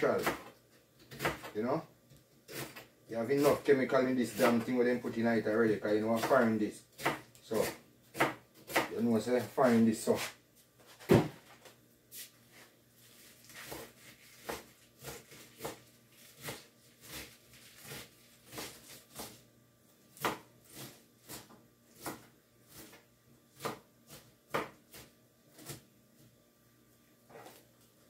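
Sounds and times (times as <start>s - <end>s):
knife chopping cabbage on board: 0.0s - 1.6s, 2.5s - 4.7s, 6.0s - 9.0s, 13.4s - 19.4s, 20.1s - 25.9s.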